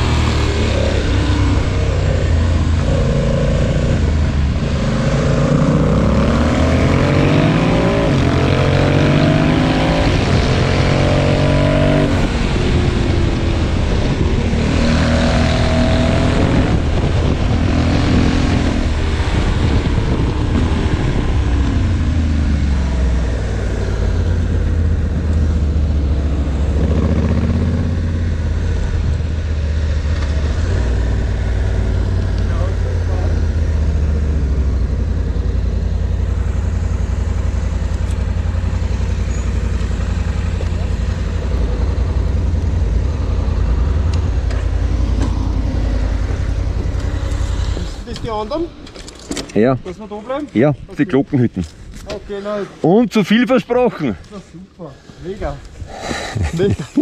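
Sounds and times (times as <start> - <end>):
wind noise: 0.0 - 25.3
motorcycle engine shifting gears: 0.0 - 52.6.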